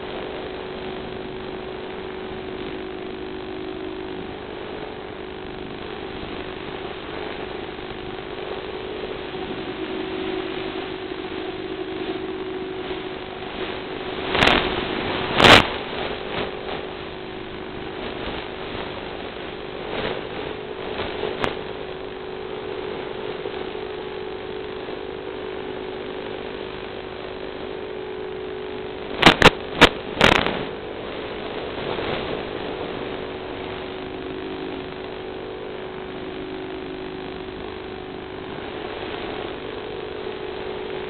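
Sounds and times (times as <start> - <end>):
electric motor and propeller hum: 0.0 - 41.0
sharp loud pops: 14.3 - 14.7, 29.2 - 30.7.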